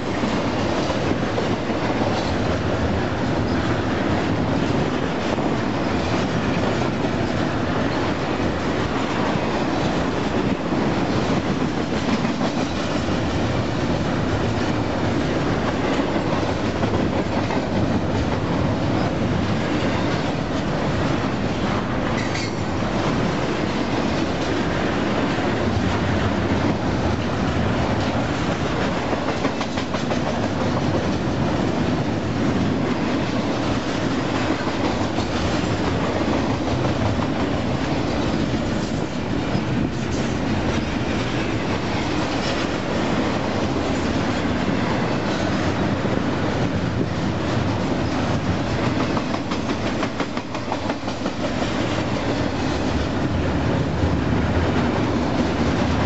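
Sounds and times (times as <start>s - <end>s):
train wheels rumbling on rails: 0.0s - 56.0s
clickety-clack of wheel clicks: 11.2s - 13.0s, 28.0s - 31.2s, 48.7s - 52.1s.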